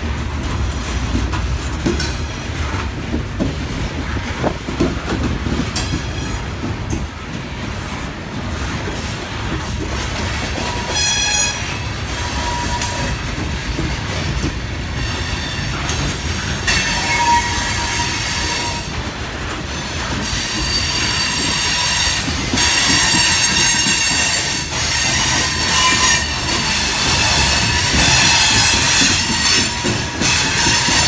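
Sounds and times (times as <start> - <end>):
train wheels squealing on rail: 5.7 - 6.6, 8.9 - 31.0.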